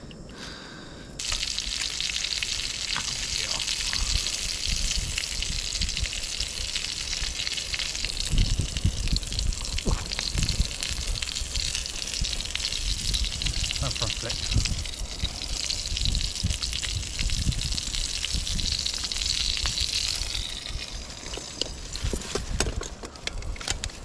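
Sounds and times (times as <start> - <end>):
food sizzling in a pan: 1.2 - 22.2
low thuds and rumbles: 8.2 - 15.0, 15.8 - 20.4.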